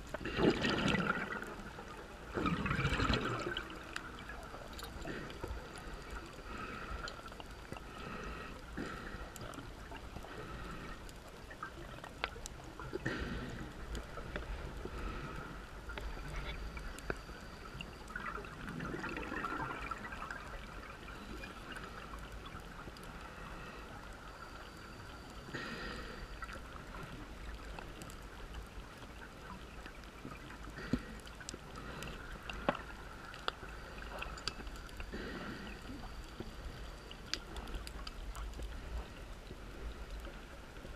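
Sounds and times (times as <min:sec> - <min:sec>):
bubbles gurgling underwater: 0:00.0 - 0:05.3, 0:17.8 - 0:22.6
steady hiss: 0:01.2 - 0:40.9.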